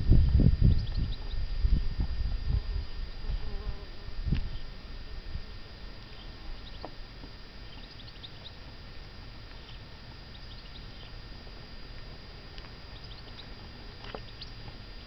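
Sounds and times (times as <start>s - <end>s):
bird chirps: 0.7s - 1.4s, 6.1s - 6.9s, 7.6s - 8.6s, 9.6s - 11.2s, 12.9s - 13.5s, 14.1s - 14.7s
tortoise chewing leaves: 5.8s - 15.0s.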